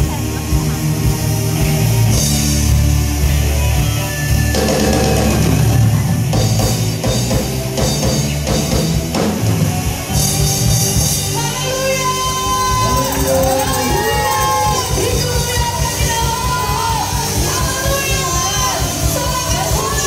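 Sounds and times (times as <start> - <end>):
drum kit: 0.0 - 20.0
electric guitar: 0.0 - 20.0
heavy low bass: 0.0 - 20.0
keyboard: 0.0 - 20.0
rock band playing: 0.0 - 20.0.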